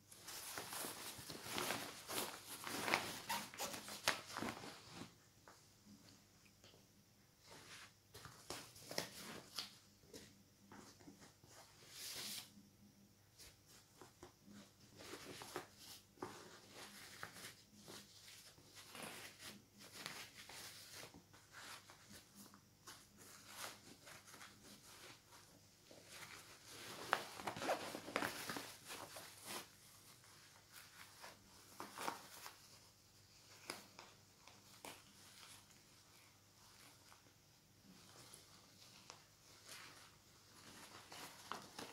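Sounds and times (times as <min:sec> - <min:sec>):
backpack fabric rustling: 0:00.1 - 0:05.2, 0:25.9 - 0:32.6.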